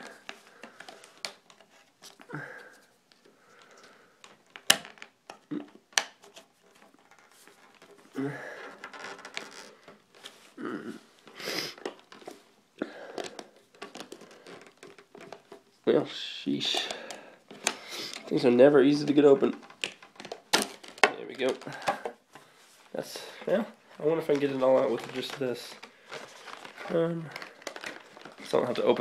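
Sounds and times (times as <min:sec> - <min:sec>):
person grunting with effort: 0:10.6 - 0:11.1.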